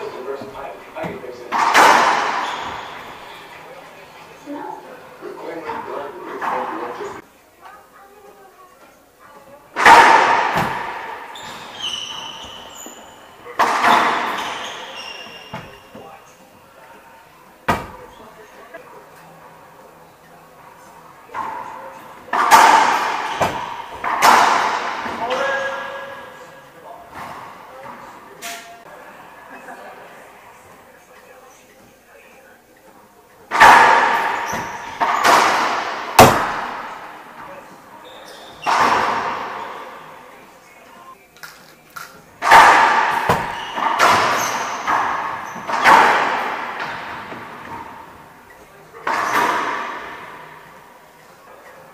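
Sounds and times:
racquetball hitting walls: 0:00.0 - 0:03.8, 0:09.8 - 0:18.8, 0:21.2 - 0:29.0, 0:33.5 - 0:40.3, 0:42.0 - 0:51.0
sneakers squeaking on hardwood: 0:00.0 - 0:03.8, 0:09.8 - 0:17.0, 0:21.3 - 0:28.8, 0:33.8 - 0:40.2, 0:42.4 - 0:50.6
racquetball hit crack: 0:33.5 - 0:37.1.

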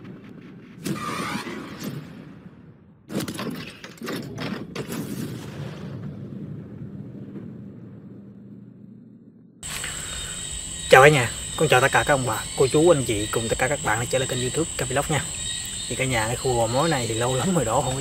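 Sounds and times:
low rumble: 0:05.7 - 0:12.6.

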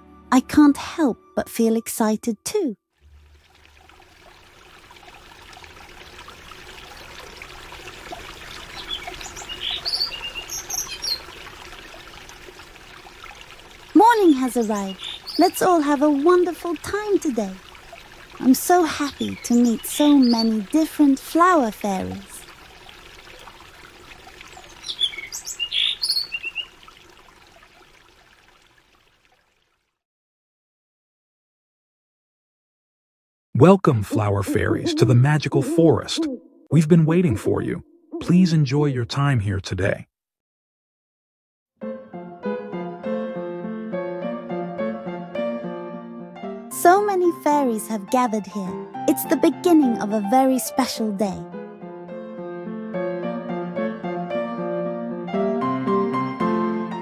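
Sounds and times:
faint forest background: 0:00.3 - 0:30.0, 0:33.6 - 0:40.1, 0:41.8 - 0:57.0
stream babbling: 0:03.0 - 0:29.9, 0:33.6 - 0:38.8, 0:46.7 - 0:51.3
birds chirping: 0:08.4 - 0:11.6, 0:14.0 - 0:23.0, 0:24.4 - 0:26.9, 0:34.0 - 0:38.6.

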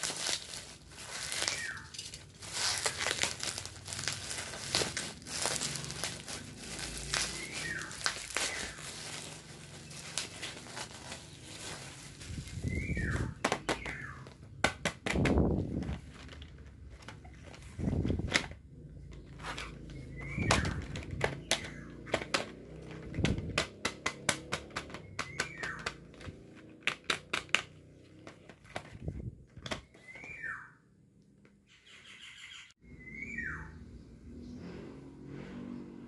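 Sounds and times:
bird chirping: 0:01.4 - 0:02.0, 0:07.2 - 0:10.4, 0:12.4 - 0:14.4, 0:19.0 - 0:22.1, 0:25.0 - 0:26.1, 0:29.8 - 0:31.0, 0:31.6 - 0:34.6.

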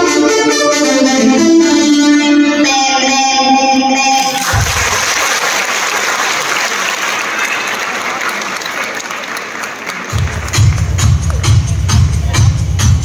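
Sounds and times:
dance music: 0:00.0 - 0:05.1, 0:10.1 - 0:13.0
audience applauding: 0:04.2 - 0:11.4.

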